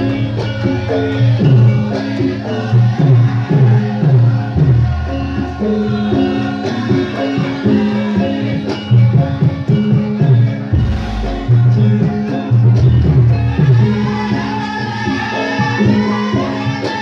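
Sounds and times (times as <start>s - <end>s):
low hand drum strokes: 10.7s - 13.2s.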